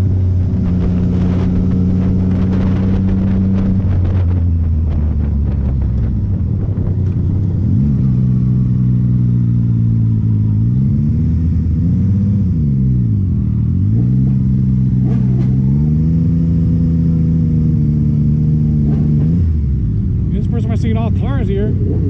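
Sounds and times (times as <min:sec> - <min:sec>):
wind rushing over microphone: 0:00.0 - 0:10.3, 0:19.0 - 0:22.0
motorcycle engine revving: 0:00.0 - 0:22.0.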